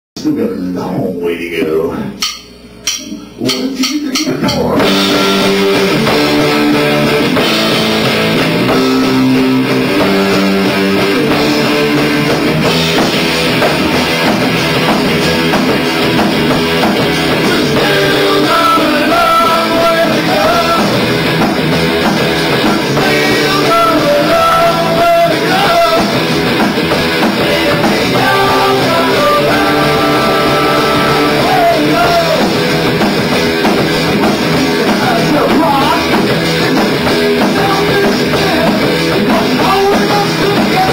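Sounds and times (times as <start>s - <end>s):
bass guitar: 0.2s - 40.9s
distorted electric guitar: 0.2s - 40.9s
drum kit: 1.9s - 40.9s
man singing lead vocal: 3.1s - 7.5s, 17.3s - 21.1s, 22.6s - 26.3s, 27.2s - 32.6s, 34.6s - 40.9s.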